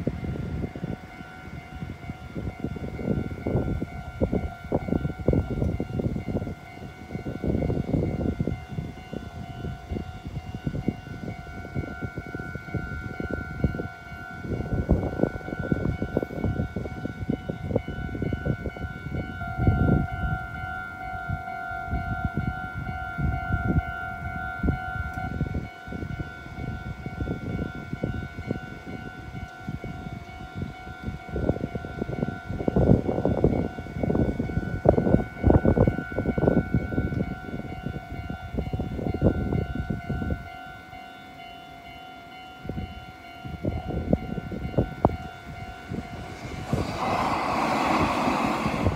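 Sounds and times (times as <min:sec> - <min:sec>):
level crossing warning bell: 0:00.0 - 0:48.9
low rumbling: 0:45.6 - 0:48.9.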